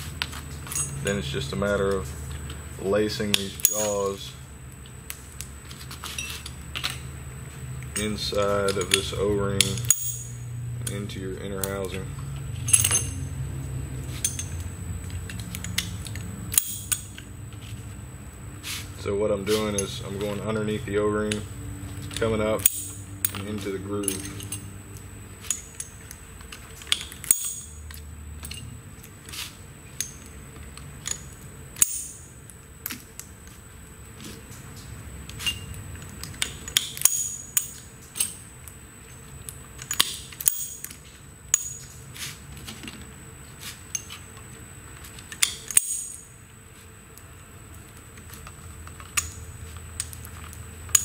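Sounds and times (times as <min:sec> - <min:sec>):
metal jaw segments clinking: 0:00.7 - 0:01.1, 0:03.3 - 0:04.1, 0:07.9 - 0:11.0, 0:12.6 - 0:13.3, 0:15.3 - 0:17.2, 0:26.9 - 0:27.8, 0:36.4 - 0:38.4, 0:39.8 - 0:40.9.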